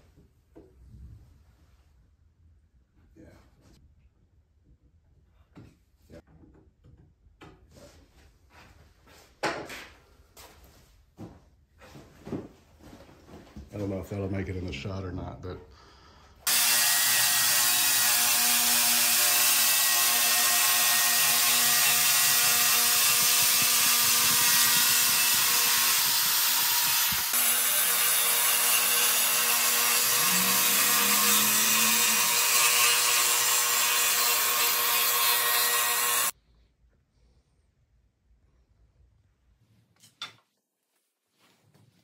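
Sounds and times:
track saw cutting wood: 16.4s - 36.3s.

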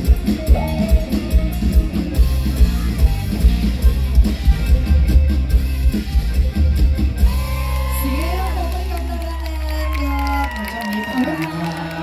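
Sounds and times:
drum kit beat: 0.0s - 8.7s
heavy bass line: 0.0s - 9.5s
guitar: 0.0s - 10.4s
keyboard: 0.0s - 12.0s.

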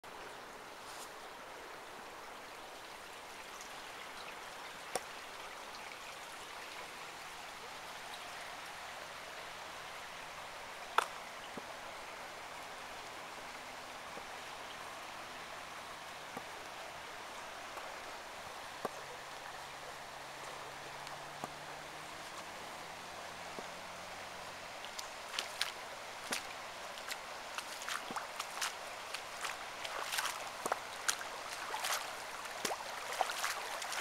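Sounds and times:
rainwater running off: 24.4s - 34.0s.

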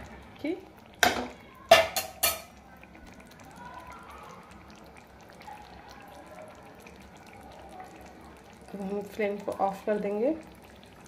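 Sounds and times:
curry bubbling: 0.0s - 11.0s
metal ladle clanking on pan: 1.0s - 2.6s.

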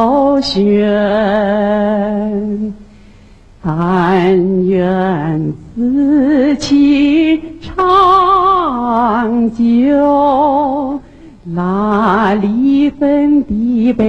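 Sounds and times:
person singing slow song: 0.0s - 14.0s.

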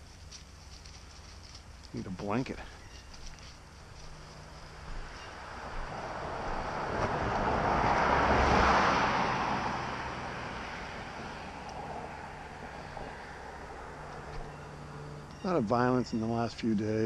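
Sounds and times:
car passing by: 4.4s - 15.3s.

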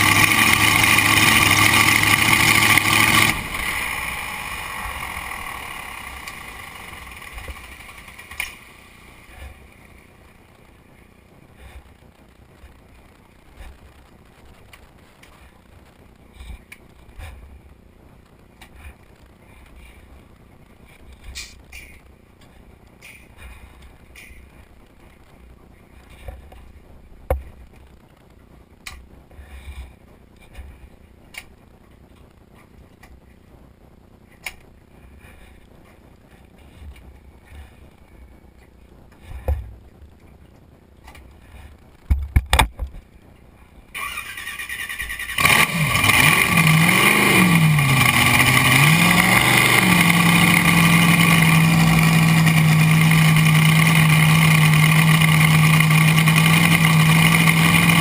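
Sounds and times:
boat engine starting and idling: 0.0s - 9.6s, 44.0s - 58.0s.

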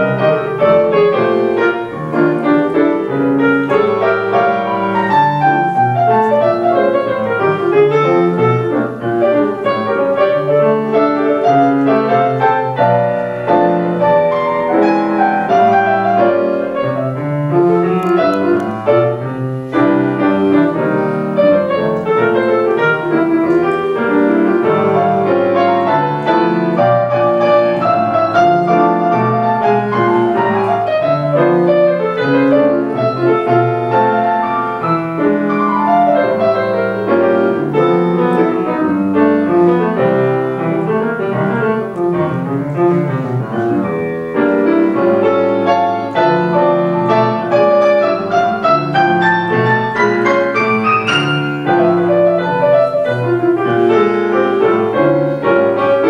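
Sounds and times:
solo grand piano: 0.0s - 56.0s.

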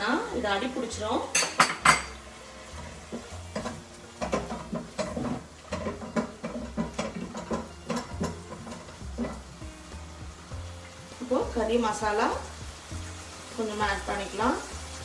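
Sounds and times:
wooden spatula scraping a wok: 2.1s - 11.4s.

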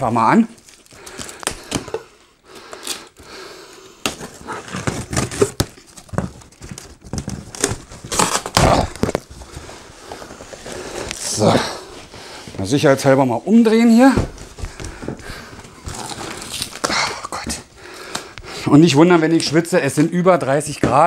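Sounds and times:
tape tearing: 2.6s - 3.2s, 4.0s - 9.5s, 15.8s - 18.3s.

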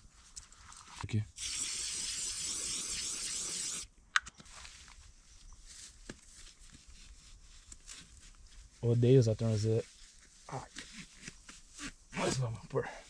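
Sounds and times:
faint rustling of handling: 0.0s - 1.2s, 4.3s - 13.0s.

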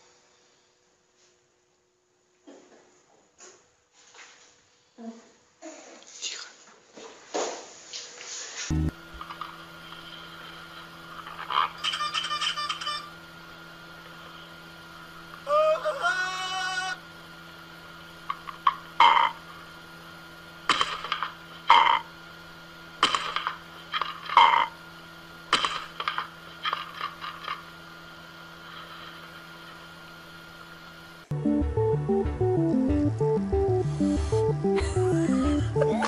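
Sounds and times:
faint steady hum: 8.7s - 36.0s.

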